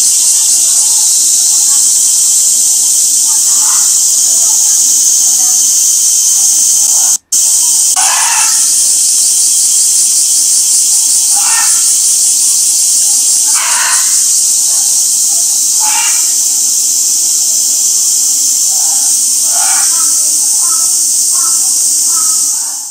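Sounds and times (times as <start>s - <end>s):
cicadas buzzing: 0.0s - 22.9s.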